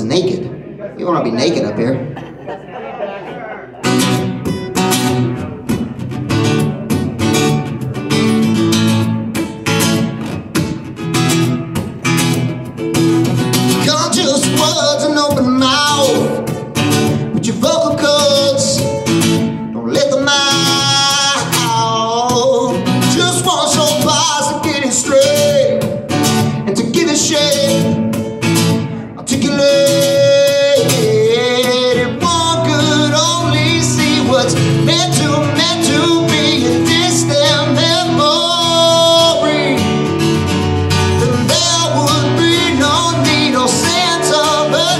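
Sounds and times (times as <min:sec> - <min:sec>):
acoustic guitar strumming: 0:03.8 - 0:44.9
man singing: 0:13.6 - 0:44.9.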